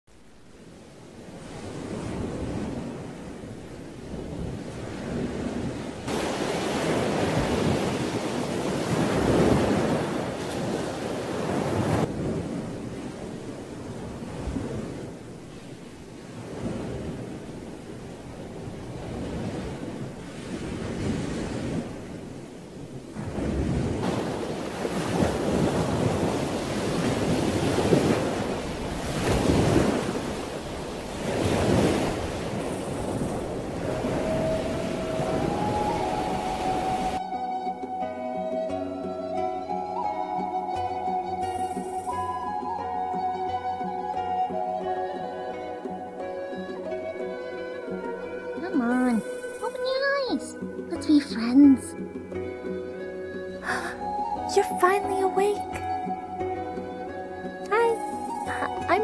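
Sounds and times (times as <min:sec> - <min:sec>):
low rumble of sea: 0:00.1 - 0:37.2
rushing surf-like noise: 0:00.1 - 0:37.2
ocean waves crashing: 0:00.1 - 0:59.0.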